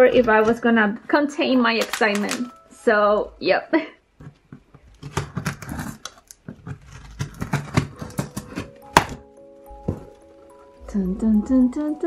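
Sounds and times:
soft background music: 0.0s - 4.0s, 7.0s - 12.0s
scissors cutting cardboard: 4.8s - 9.2s.

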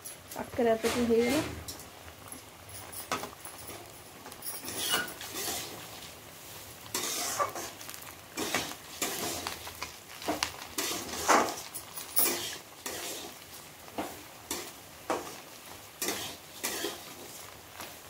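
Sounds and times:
oil sizzling: 0.0s - 18.0s
metal spatula scraping a pan: 0.7s - 1.8s, 4.3s - 6.0s, 6.9s - 9.6s, 10.7s - 17.6s.

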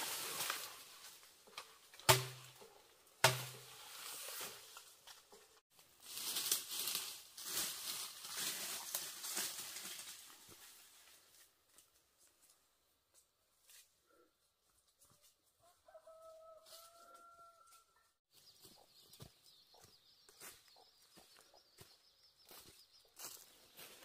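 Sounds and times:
footsteps through brush: 0.0s - 2.6s, 3.2s - 14.0s, 14.6s - 24.0s
rustling leaves and undergrowth: 0.0s - 14.0s, 14.6s - 24.0s.

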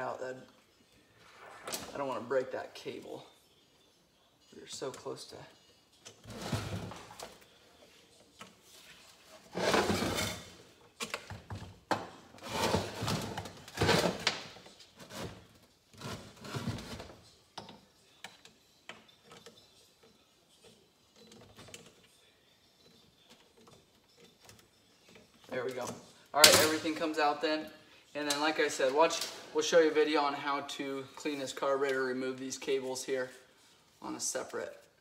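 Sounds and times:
parts rubbing and knocking: 8.6s - 10.6s.

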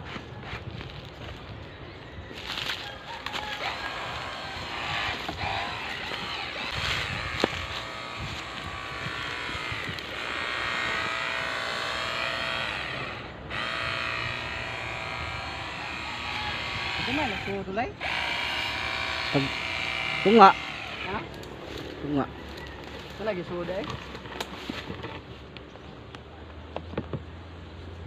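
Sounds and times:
battery spray pump running: 3.2s - 21.5s.

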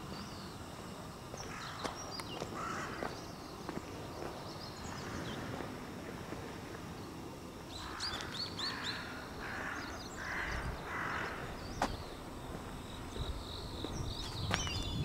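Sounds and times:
steady outdoor hiss: 0.0s - 15.0s
hoarse bird calls: 7.8s - 12.2s.

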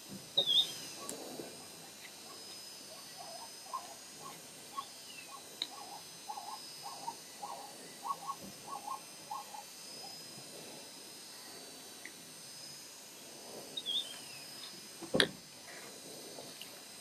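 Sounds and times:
falling chirp: 0.4s - 1.1s, 13.8s - 14.5s
short pitched animal calls: 3.0s - 10.2s.

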